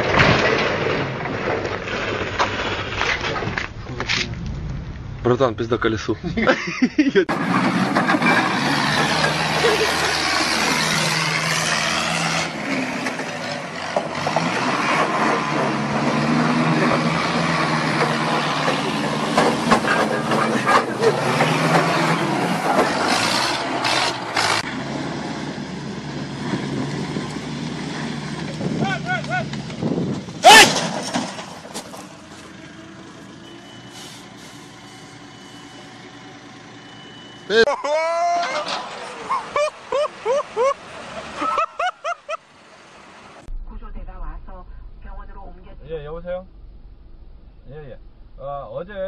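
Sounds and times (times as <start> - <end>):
forklift clattering: 7.3 - 11.6, 12.6 - 24.7, 38.3 - 39.9
forklift engine running: 31.4 - 37.6.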